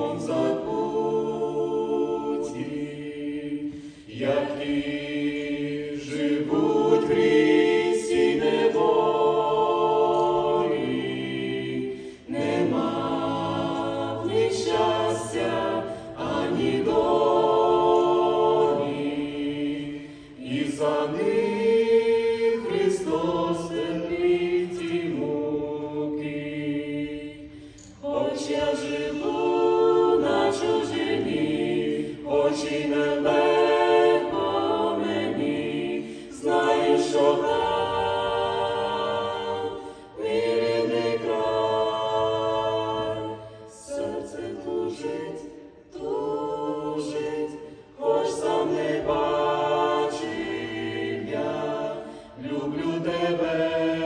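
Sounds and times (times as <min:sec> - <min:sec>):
vocal quartet singing a cappella: 0:00.0 - 0:54.0.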